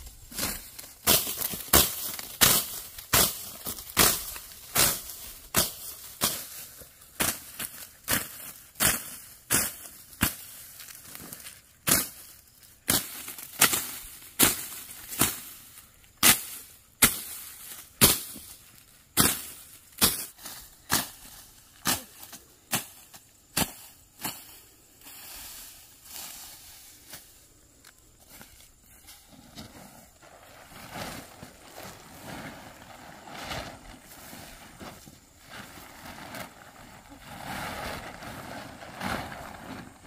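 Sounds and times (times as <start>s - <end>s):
sickle cutting rice stalks: 0.0s - 27.5s.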